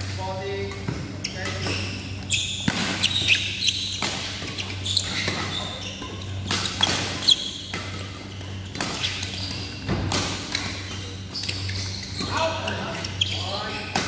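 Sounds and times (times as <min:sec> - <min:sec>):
steady low hum: 0:00.0 - 0:14.0
sneakers squeaking on court: 0:00.4 - 0:14.0
rackets hitting shuttlecock: 0:02.5 - 0:12.4.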